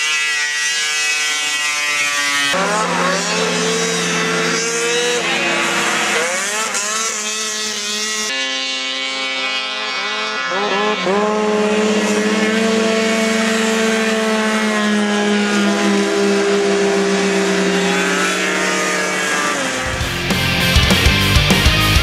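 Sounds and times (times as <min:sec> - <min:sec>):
snowmobile engines racing: 0:00.0 - 0:22.0
rock music: 0:02.6 - 0:06.6, 0:19.6 - 0:22.0.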